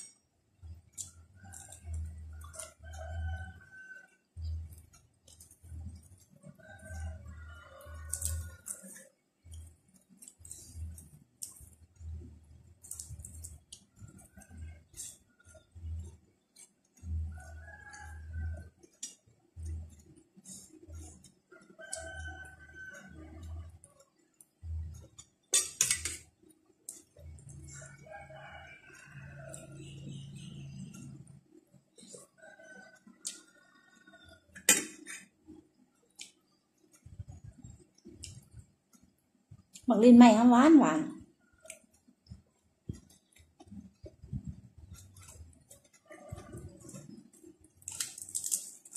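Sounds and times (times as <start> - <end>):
chewing raw vegetables: 4.4 - 25.4, 41.3 - 48.9
rooster crowing: 6.8 - 8.8, 21.7 - 23.3, 27.8 - 30.4.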